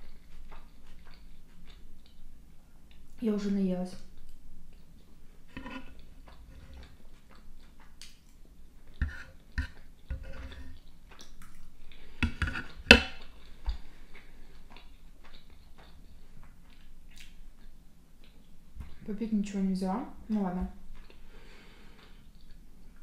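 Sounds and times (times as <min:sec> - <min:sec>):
chewing: 0:00.0 - 0:03.2, 0:04.0 - 0:19.0, 0:20.8 - 0:23.0
fork scraping on wooden board: 0:05.5 - 0:06.9, 0:09.0 - 0:10.8, 0:12.2 - 0:13.2
fork clacking on board: 0:12.2 - 0:13.2.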